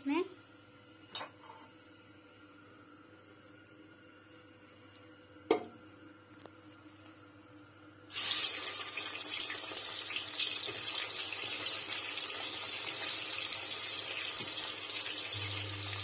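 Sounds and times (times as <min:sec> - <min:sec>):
onions sizzling in hot oil: 0:08.1 - 0:16.0.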